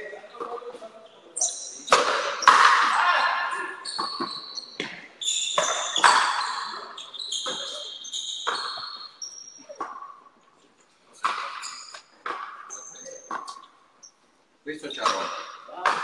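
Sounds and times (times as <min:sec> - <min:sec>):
high squeaks: 0:01.0 - 0:10.0, 0:11.2 - 0:14.2.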